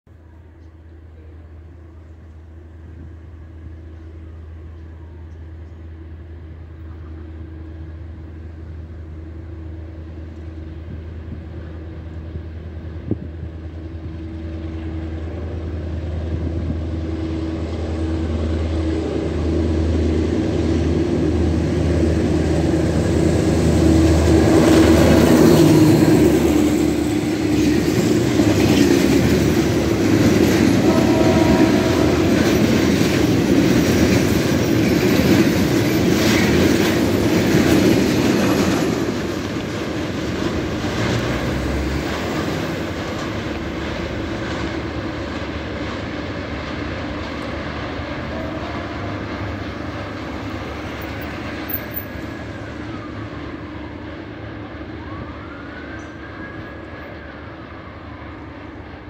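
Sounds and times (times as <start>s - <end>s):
diesel locomotive engine drone: 0.1s - 59.0s
train wheels clattering on rails: 18.0s - 52.7s.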